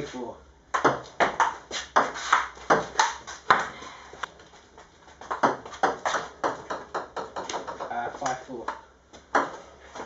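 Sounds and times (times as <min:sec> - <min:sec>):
table tennis ball hits: 0:00.7 - 0:03.8, 0:05.2 - 0:09.6.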